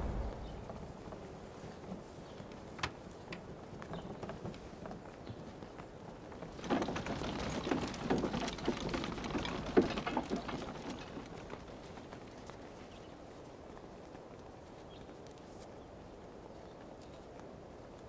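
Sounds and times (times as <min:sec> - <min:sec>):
footsteps: 0:00.0 - 0:01.2.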